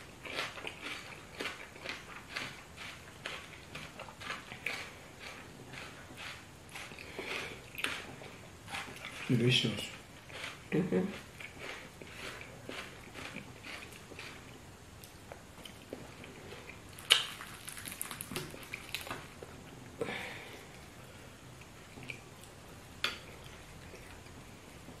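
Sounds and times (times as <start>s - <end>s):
chewing and wet mouth sounds: 0.2s - 19.6s, 21.5s - 25.0s
crisp fried fish crackling: 16.9s - 19.3s.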